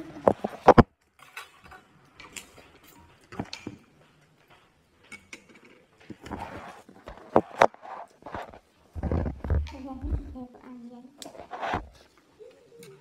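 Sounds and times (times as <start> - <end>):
tableware clicking and knocking: 5.0 - 6.4.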